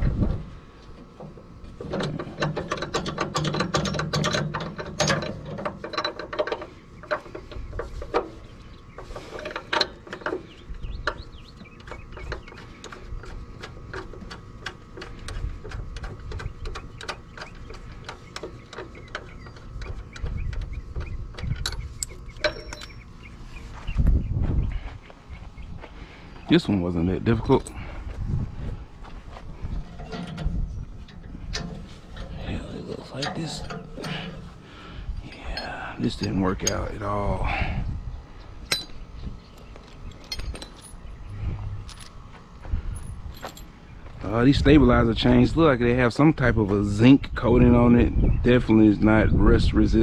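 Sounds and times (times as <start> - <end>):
metal hardware clicking and clinking: 1.8 - 8.3, 21.3 - 23.0, 33.0 - 34.5, 38.7 - 39.0, 39.9 - 42.2, 42.9 - 43.8.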